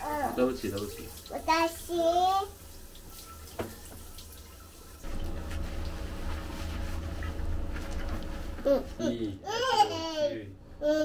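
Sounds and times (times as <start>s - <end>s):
child vocal sounds: 1.3s - 2.6s
hands rubbing wet hair: 5.0s - 9.2s.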